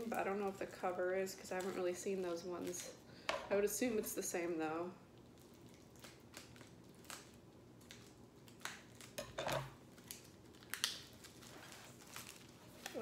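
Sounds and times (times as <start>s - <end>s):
packaging rustling: 5.4s - 13.0s.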